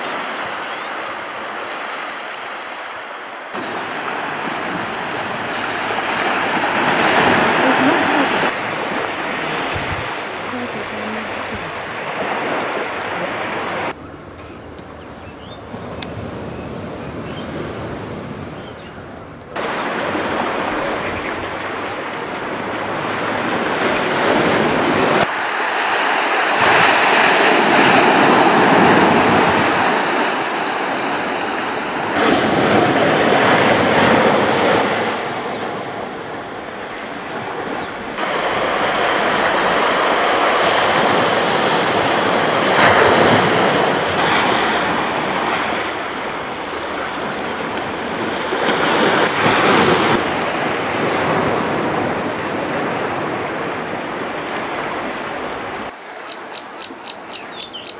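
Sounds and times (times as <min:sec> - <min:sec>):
waves washing on rocky shore: 0:00.0 - 0:14.0, 0:19.6 - 0:56.0.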